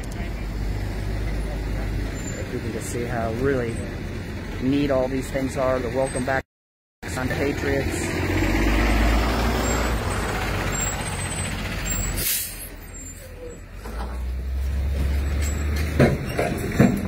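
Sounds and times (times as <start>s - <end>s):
truck engine running: 7.0s - 17.0s
short sharp hiss: 12.2s - 12.7s.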